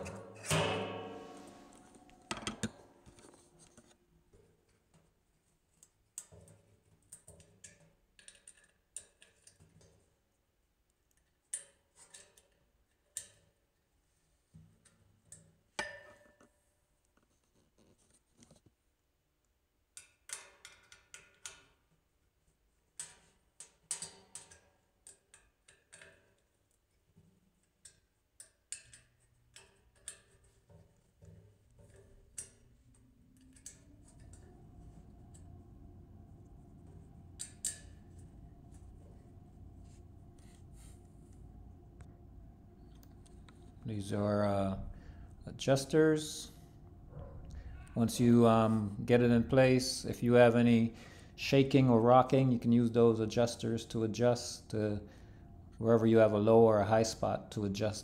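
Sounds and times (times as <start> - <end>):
small metallic clicks and taps: 5.8 - 10.0, 23.0 - 35.6.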